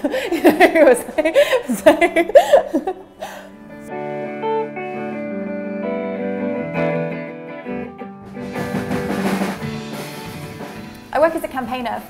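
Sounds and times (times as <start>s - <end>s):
electric guitar: 3.3s - 11.2s
bass guitar: 3.9s - 11.2s.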